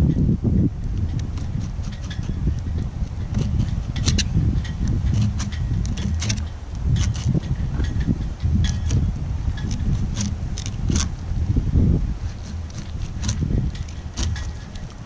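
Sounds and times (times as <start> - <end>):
wind buffeting microphone: 0.0 - 15.0
knife scraping through fish: 1.2 - 4.3, 4.9 - 7.4, 8.6 - 11.2, 12.2 - 15.0.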